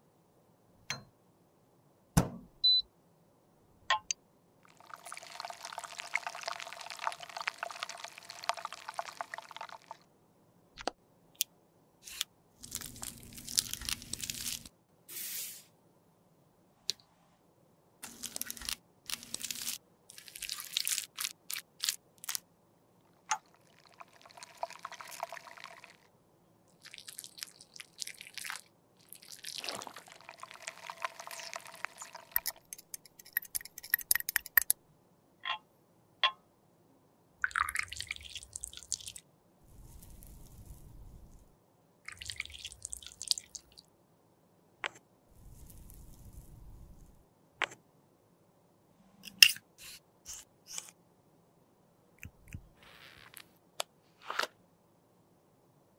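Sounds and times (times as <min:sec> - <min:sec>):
rod stirring in glass beaker: 0:29.4 - 0:34.7.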